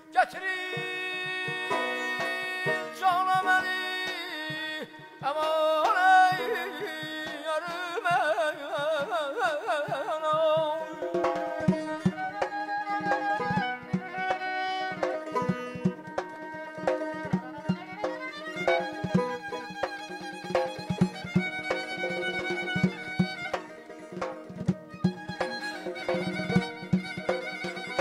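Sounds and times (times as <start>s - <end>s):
man singing with trills: 0.0s - 12.0s
drum tapping: 0.2s - 28.0s
plucked lute: 0.8s - 9.4s, 10.8s - 28.0s.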